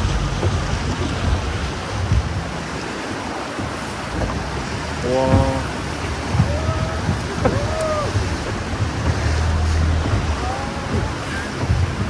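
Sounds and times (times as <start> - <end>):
motorboat engine hum: 0.0 - 12.0
sea water sloshing and splashing: 0.0 - 12.0
wind buffeting microphone: 0.0 - 12.0.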